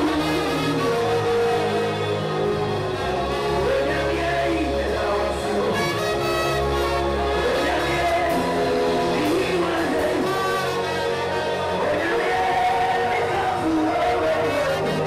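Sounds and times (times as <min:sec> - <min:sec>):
gospel band accompaniment: 0:00.0 - 0:15.0
man singing into a microphone: 0:03.5 - 0:06.6, 0:07.3 - 0:15.0.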